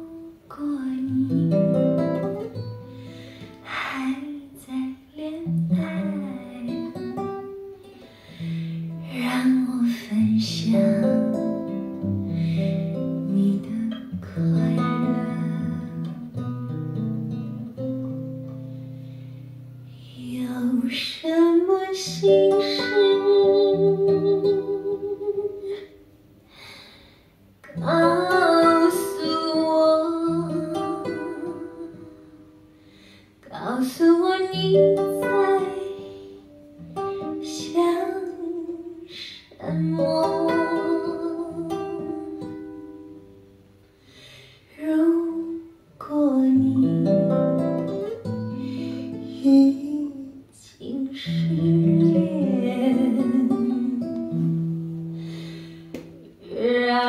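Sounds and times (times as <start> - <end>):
guitar accompaniment: 0.0 - 57.0
ballad lead melody: 10.5 - 19.9.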